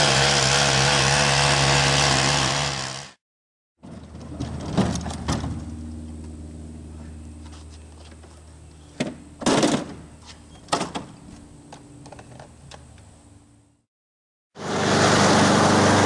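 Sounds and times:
mower knocks and clatters: 0:03.8 - 0:05.8, 0:09.0 - 0:11.2
steady low hum: 0:05.6 - 0:09.4.

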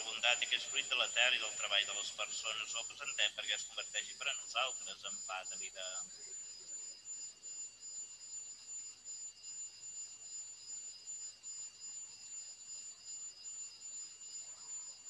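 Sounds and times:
low hiss: 0:00.0 - 0:06.4.

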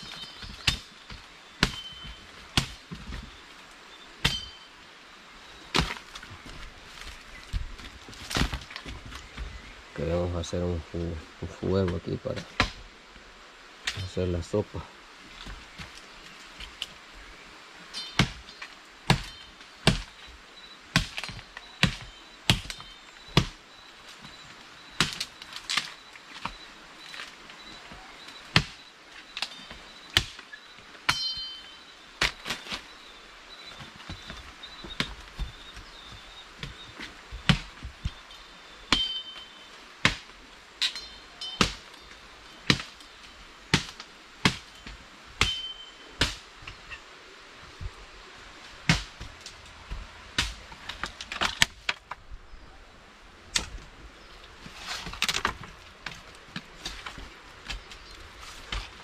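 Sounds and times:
machete chopping wood: 0:01.6 - 0:01.9, 0:02.6 - 0:02.8, 0:12.4 - 0:12.8, 0:18.0 - 0:18.4, 0:19.1 - 0:20.2, 0:20.9 - 0:22.8, 0:23.4 - 0:23.6, 0:25.0 - 0:25.9, 0:28.5 - 0:28.8, 0:30.2 - 0:30.4, 0:37.4 - 0:37.7, 0:40.0 - 0:41.0, 0:41.6 - 0:41.9, 0:42.7 - 0:43.0, 0:43.7 - 0:46.4, 0:48.8 - 0:49.2, 0:50.4 - 0:52.0
metallic ring from blade: 0:31.1 - 0:31.8.

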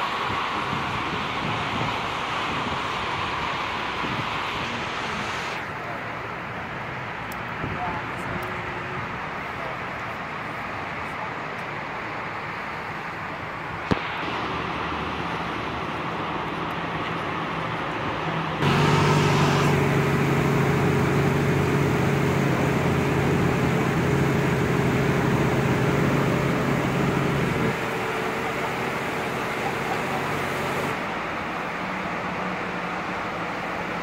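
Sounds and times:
car engine starting and idling: 0:18.6 - 0:34.0.

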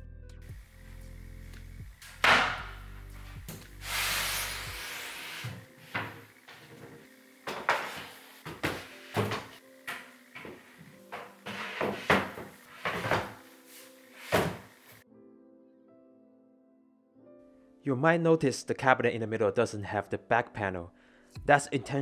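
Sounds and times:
soft background music: 0:00.0 - 0:22.0
cabinet boxes knocking and thumping: 0:07.5 - 0:09.6, 0:11.7 - 0:13.4, 0:14.3 - 0:14.7.

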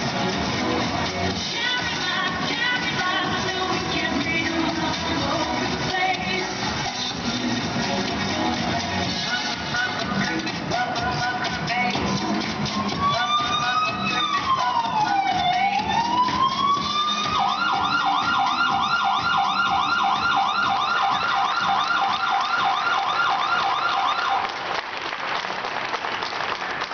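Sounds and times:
dance music over loudspeakers: 0:00.0 - 0:24.5
siren sound effect: 0:12.8 - 0:24.4
applause: 0:23.1 - 0:26.9.

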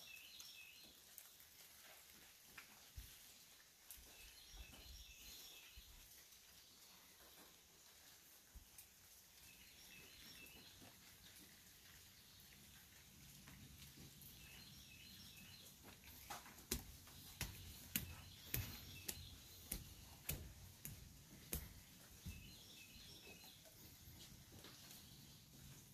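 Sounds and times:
footsteps on wooden stairs: 0:15.8 - 0:25.8.

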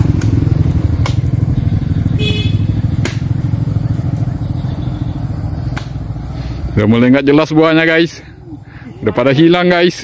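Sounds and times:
diesel truck engine idling: 0:00.0 - 0:09.8
sharp knocks: 0:02.9 - 0:03.4.

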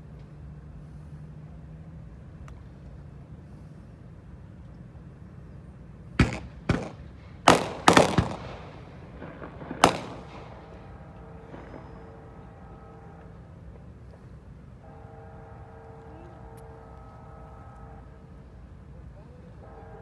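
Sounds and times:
sharp bangs: 0:06.2 - 0:12.8.

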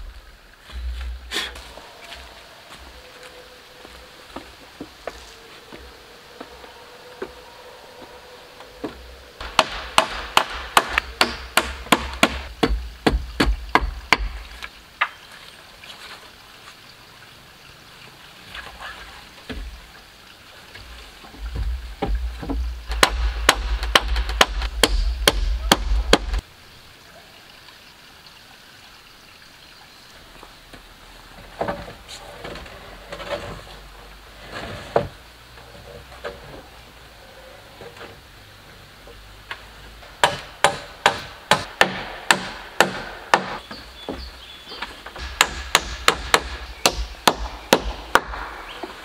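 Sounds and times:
hand tool striking wood: 0:08.8 - 0:15.2, 0:21.5 - 0:26.4, 0:40.2 - 0:44.3, 0:45.2 - 0:49.0.

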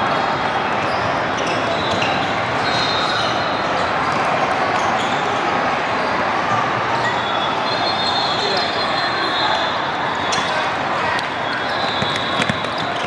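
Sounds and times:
crowd chatter: 0:00.0 - 0:13.0
basketballs bouncing on hardwood: 0:11.9 - 0:13.0.

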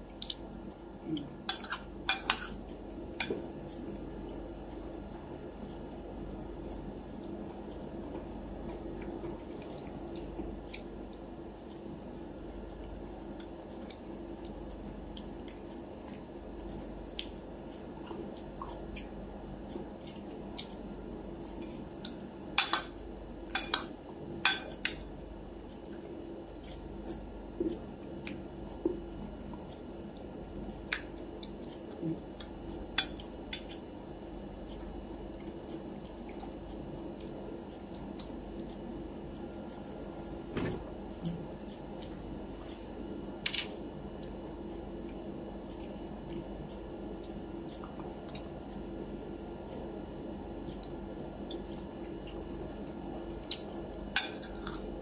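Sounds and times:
faint steady hum: 0:00.0 - 0:55.0.

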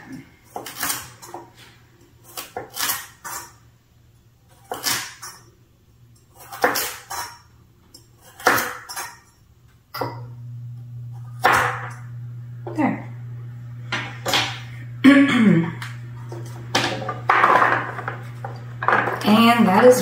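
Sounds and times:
knife chopping on cutting board: 0:06.4 - 0:07.3, 0:08.2 - 0:08.9, 0:11.4 - 0:11.9
low hum: 0:10.1 - 0:20.0.

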